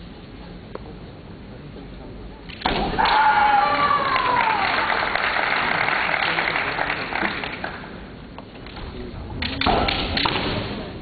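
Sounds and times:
players shouting: 0:03.0 - 0:05.0
bamboo swords clacking: 0:08.7 - 0:10.8.

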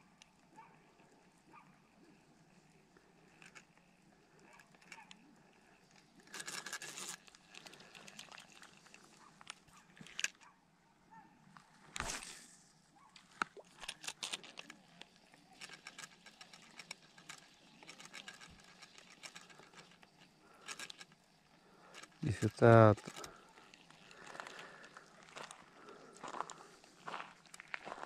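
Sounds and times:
fishing reel clicking: 0:03.3 - 0:10.4, 0:13.6 - 0:25.8.

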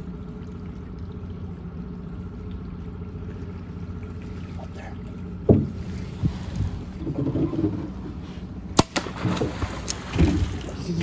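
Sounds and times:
outboard motor running: 0:00.0 - 0:11.0
water around boat: 0:00.0 - 0:11.0.

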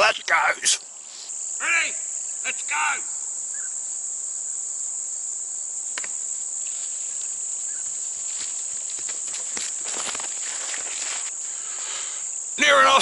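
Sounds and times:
high-pitched insect drone: 0:00.6 - 0:13.0
barefoot footsteps on sand: 0:06.0 - 0:11.4.

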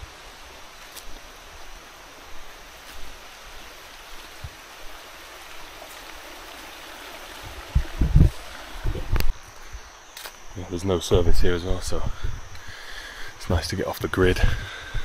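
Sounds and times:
rushing stream: 0:00.0 - 0:11.2.

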